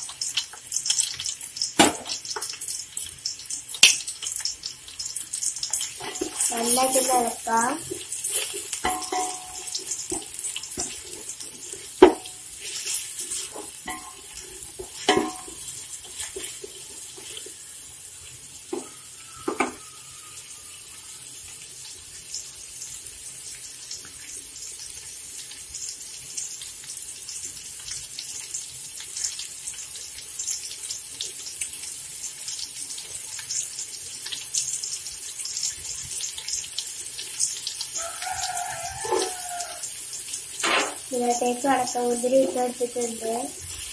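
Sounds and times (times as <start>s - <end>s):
vegetables sizzling in oil: 0.0s - 43.9s
spoon knocking and scraping pot: 5.8s - 7.5s, 8.3s - 17.4s, 18.7s - 19.9s, 39.0s - 39.4s, 40.6s - 41.1s.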